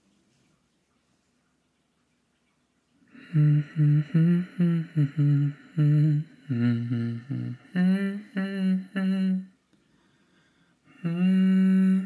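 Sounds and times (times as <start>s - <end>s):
man humming a slow tune: 3.1s - 9.6s, 10.9s - 12.0s.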